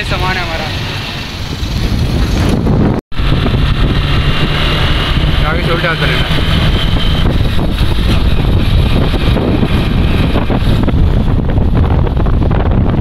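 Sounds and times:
wind buffeting microphone: 0.0s - 13.0s
motor rickshaw engine running: 3.2s - 12.8s.

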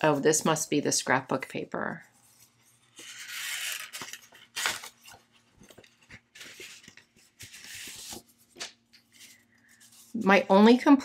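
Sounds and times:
paper rustling and sliding: 2.2s - 10.2s.

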